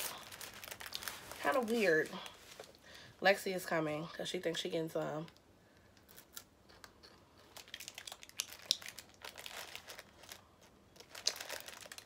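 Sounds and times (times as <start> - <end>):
plastic snack packet crinkling: 0.0 - 2.8, 6.1 - 12.0.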